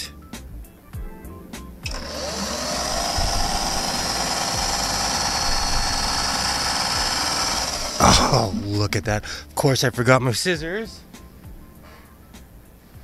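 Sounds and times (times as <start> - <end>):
sewing machine motor whine: 1.9 - 8.7.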